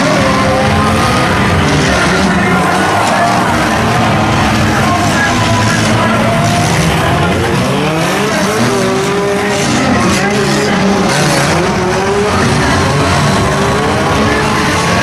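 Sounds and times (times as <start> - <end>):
constant rush of noise: 0.0 - 15.0
race car engines revving: 0.0 - 15.0.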